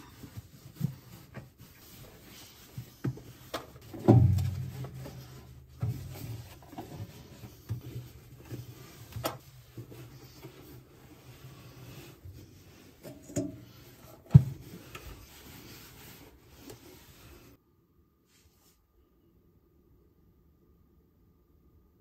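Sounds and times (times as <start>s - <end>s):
cloth rubbing inside microwave: 0.0s - 17.6s.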